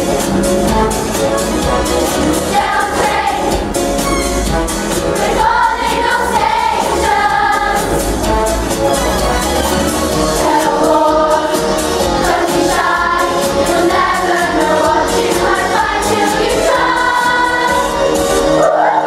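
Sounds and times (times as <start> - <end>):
backing music with steady beat: 0.0 - 18.8
youth choir singing in unison: 2.3 - 3.8, 5.1 - 8.2, 10.1 - 19.0.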